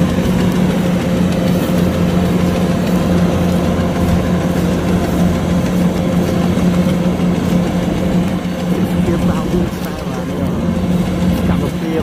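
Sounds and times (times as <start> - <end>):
combine harvester engine droning: 0.0 - 12.0.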